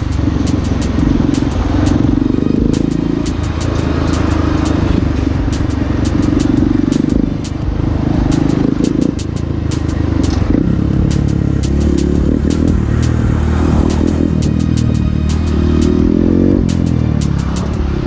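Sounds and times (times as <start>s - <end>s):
sharp clicks: 0.0s - 16.0s
motorcycle engine running: 0.0s - 18.0s.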